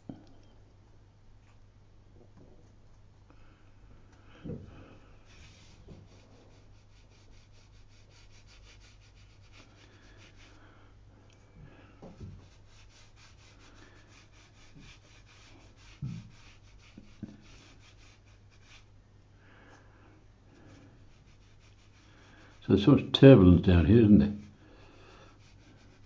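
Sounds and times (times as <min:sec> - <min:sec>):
paintbrush strokes on paper: 0:04.8 - 0:10.7, 0:12.1 - 0:19.0, 0:20.5 - 0:26.0.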